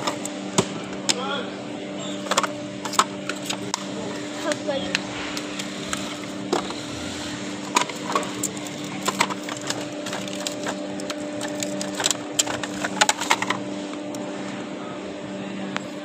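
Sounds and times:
steady low hum: 0:00.0 - 0:16.0
plastic jars clattering: 0:02.2 - 0:03.8, 0:07.6 - 0:13.6.

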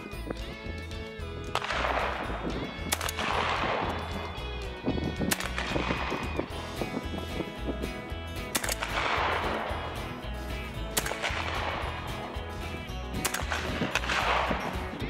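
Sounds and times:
background music with a beat: 0:00.0 - 0:15.0
shotgun shots echoing: 0:01.5 - 0:04.4, 0:05.2 - 0:07.6, 0:08.4 - 0:15.0.

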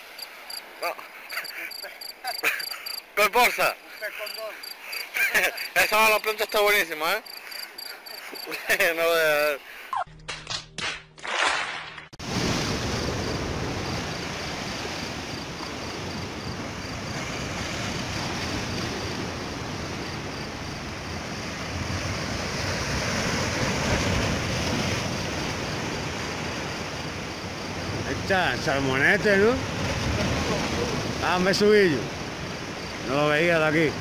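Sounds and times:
sea waves breaking on rocks: 0:11.5 - 0:34.0.

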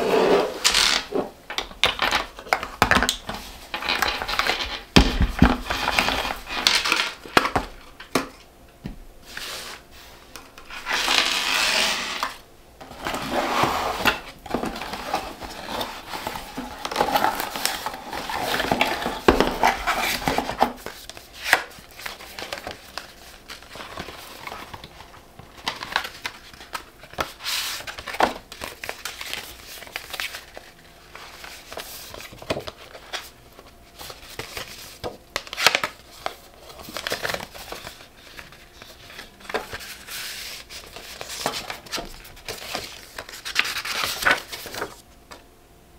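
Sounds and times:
items tapping and clicking: 0:01.5 - 0:09.0
paper and cardboard rustling: 0:09.2 - 0:45.4
paper leaflets unfolding: 0:14.0 - 0:45.4.

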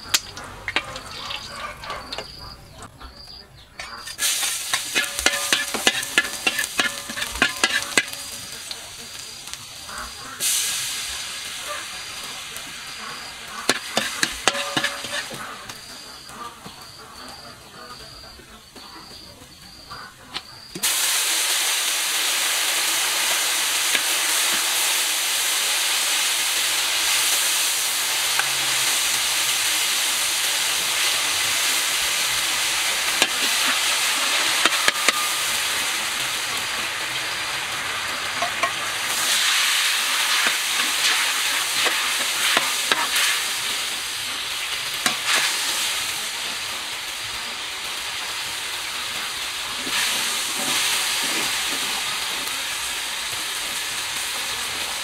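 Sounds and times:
garlic sizzling in hot oil: 0:00.0 - 0:02.9, 0:03.8 - 0:19.2, 0:19.8 - 0:55.0
spatula scraping a wok: 0:03.8 - 0:08.8, 0:12.9 - 0:16.3, 0:32.0 - 0:36.2, 0:38.0 - 0:46.4, 0:49.6 - 0:52.8.

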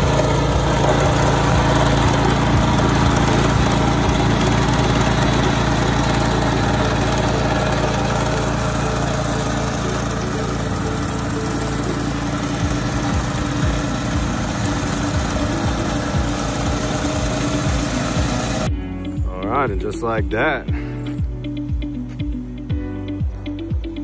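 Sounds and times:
tiller engine running: 0:00.0 - 0:18.8.

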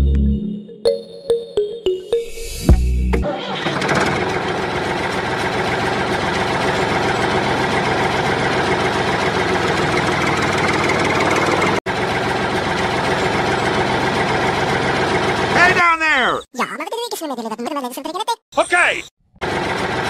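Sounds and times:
tractor engine idling: 0:03.4 - 0:15.9, 0:19.4 - 0:20.0.

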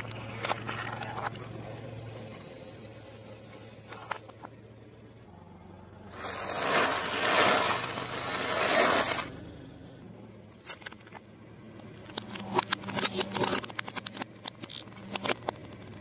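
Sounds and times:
toy crackling under tyre: 0:06.1 - 0:09.3, 0:12.0 - 0:16.0.

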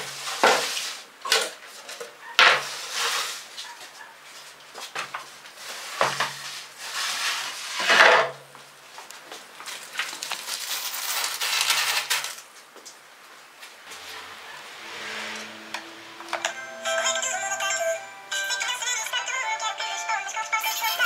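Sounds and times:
board scraping on board: 0:05.6 - 0:08.4, 0:13.9 - 0:16.4.

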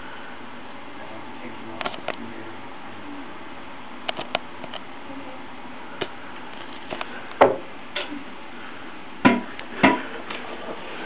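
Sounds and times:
sharp knocks on hard surface: 0:09.2 - 0:10.0.

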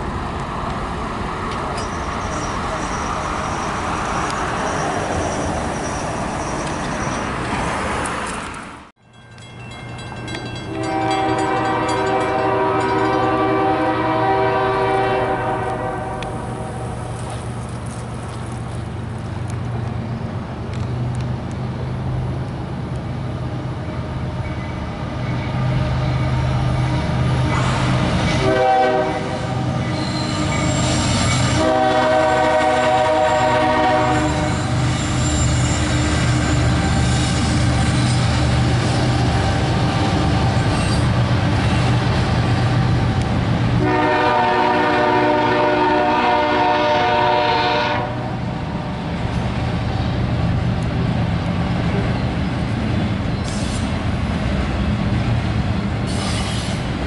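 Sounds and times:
locomotive engine rumble: 0:00.0 - 0:57.0
road traffic passing: 0:00.0 - 0:57.0
locomotive horn blast: 0:10.7 - 0:16.8, 0:28.4 - 0:30.5, 0:31.4 - 0:34.8, 0:43.8 - 0:48.4.

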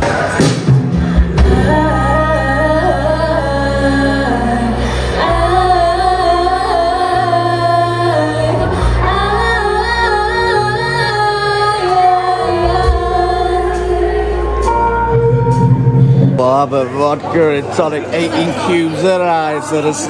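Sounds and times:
electric guitars: 0:00.0 - 0:17.3
drums: 0:00.0 - 0:18.4
women singing: 0:01.3 - 0:15.3.

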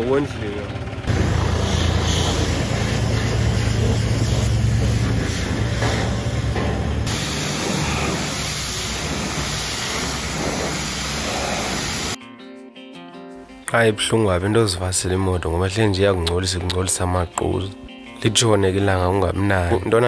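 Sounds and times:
pump humming: 0:01.0 - 0:12.2
water jet spraying: 0:01.1 - 0:12.2.

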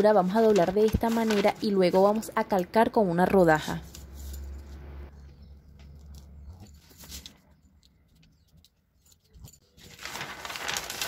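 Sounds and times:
paper rustling: 0:00.2 - 0:02.3, 0:06.0 - 0:11.0.

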